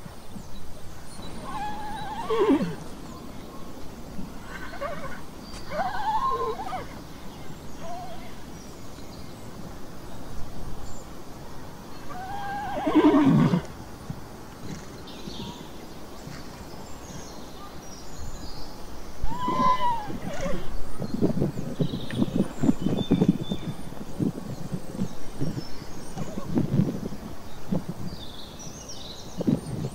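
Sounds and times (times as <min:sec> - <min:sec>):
horse whinnying: 0:01.4 - 0:02.8, 0:04.4 - 0:07.0, 0:12.1 - 0:13.7, 0:19.2 - 0:20.7.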